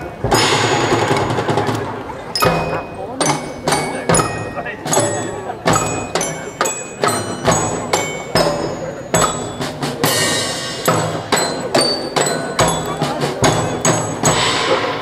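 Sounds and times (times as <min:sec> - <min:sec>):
march-like drum beats: 0:00.0 - 0:15.0
cymbal crash: 0:14.2 - 0:15.0.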